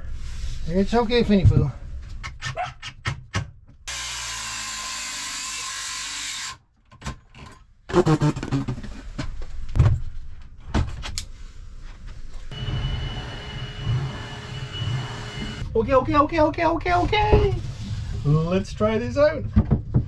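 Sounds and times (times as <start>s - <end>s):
cordless drill running: 3.9s - 6.6s, 12.5s - 15.7s
handheld vacuum cleaner whining: 12.5s - 15.7s.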